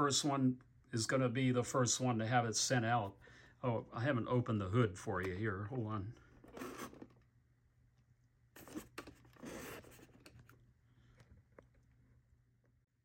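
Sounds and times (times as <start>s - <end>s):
rustling scrapes: 8.6s - 10.5s.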